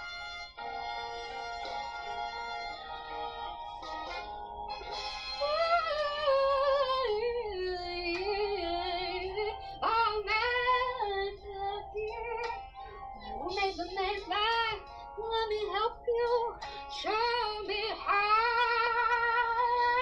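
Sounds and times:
woman singing: 0:05.4 - 0:20.0.

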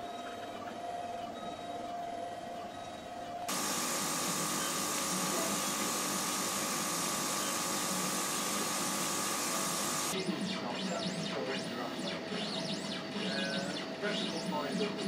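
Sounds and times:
laser cutter hissing and whining: 0:03.5 - 0:14.9.

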